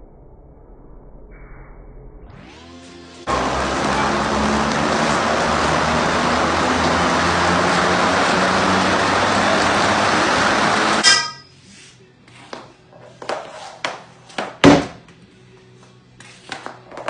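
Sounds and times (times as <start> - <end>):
treadmill running: 3.2 - 11.0.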